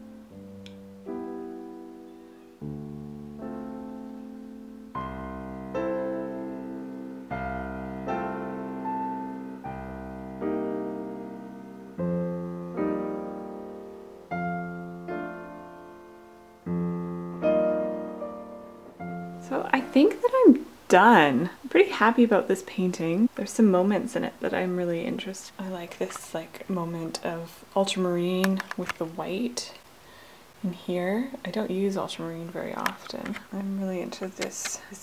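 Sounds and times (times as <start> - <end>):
slow piano chords: 0.0 - 20.8.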